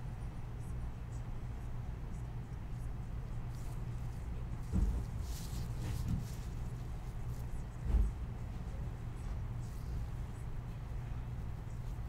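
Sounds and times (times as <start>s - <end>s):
low steady hum: 0.0s - 12.0s
faint rustling: 3.3s - 10.6s
soft thump: 4.6s - 6.5s, 7.8s - 8.2s.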